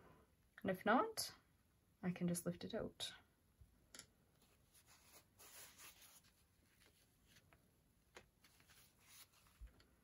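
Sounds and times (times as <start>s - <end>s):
paintbrush strokes on paper: 4.4s - 7.5s, 8.4s - 9.7s.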